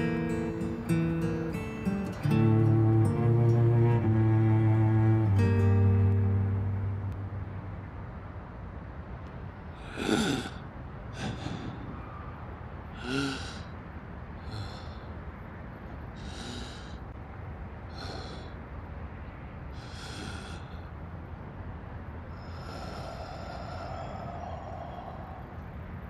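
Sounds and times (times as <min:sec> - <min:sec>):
person breathing heavily: 0:09.7 - 0:12.2, 0:12.8 - 0:13.8, 0:14.4 - 0:15.4, 0:16.0 - 0:17.2, 0:17.8 - 0:18.8, 0:19.7 - 0:21.1, 0:22.3 - 0:26.0.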